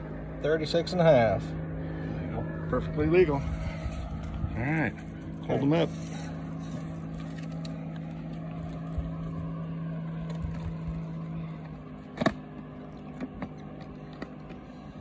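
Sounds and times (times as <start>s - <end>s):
engine humming: 0.0s - 15.0s.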